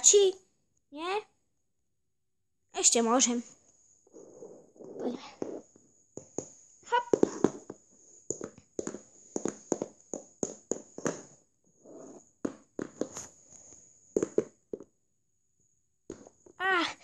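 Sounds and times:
toy hooves tapping on wooden floor: 6.2s - 11.4s, 12.4s - 13.3s, 14.1s - 14.9s.

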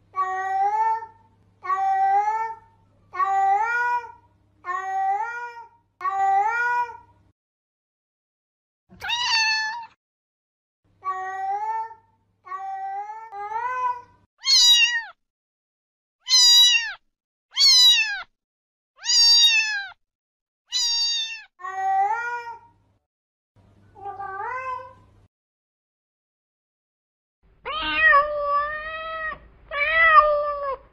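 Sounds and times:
cat meowing: 9.0s - 10.0s, 11.0s - 15.2s, 16.3s - 18.3s, 19.0s - 20.0s, 20.7s - 22.6s, 27.6s - 30.9s.

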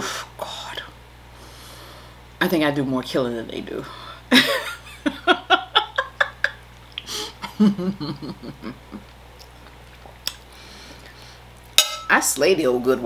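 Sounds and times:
woman laughing: 4.3s - 9.1s.

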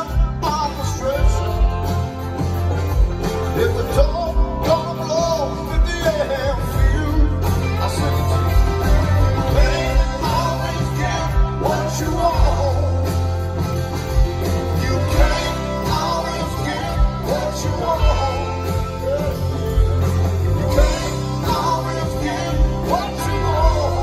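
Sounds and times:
electric and acoustic guitars: 0.0s - 24.0s.

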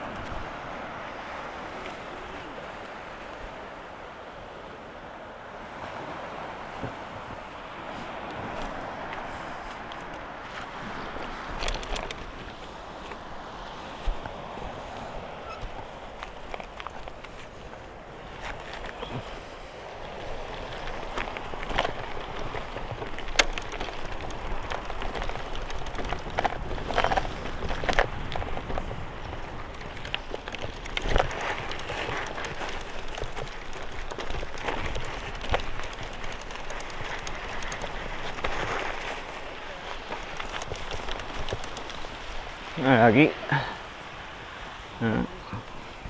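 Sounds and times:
wind rumble on microphone: 0.0s - 43.3s
bike clicks and rattles: 9.8s - 14.4s, 15.4s - 17.7s, 20.2s - 42.5s
tyres rolling on loose ground: 20.1s - 43.3s.

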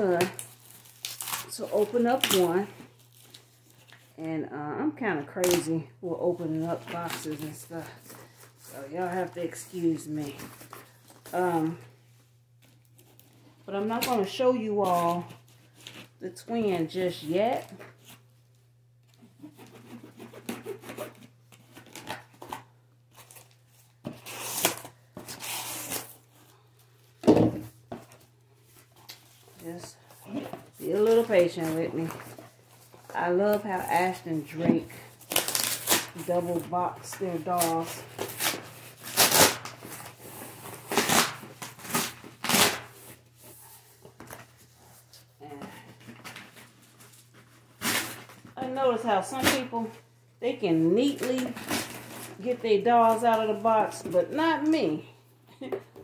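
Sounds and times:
cardboard ripping: 0.2s - 2.4s, 19.4s - 26.2s, 35.1s - 43.2s, 46.2s - 48.5s
cardboard box tearing: 19.5s - 26.2s, 35.2s - 36.3s.

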